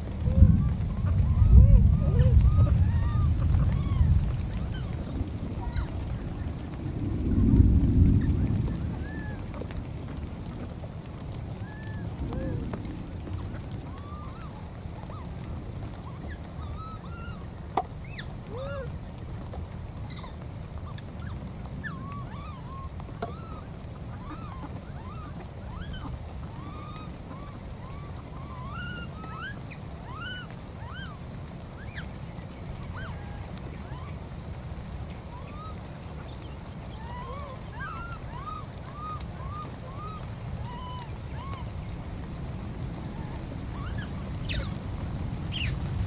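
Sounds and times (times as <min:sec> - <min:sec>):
low rumble: 0:00.0 - 0:14.5
baby monkey squeaking calls: 0:43.8 - 0:44.7.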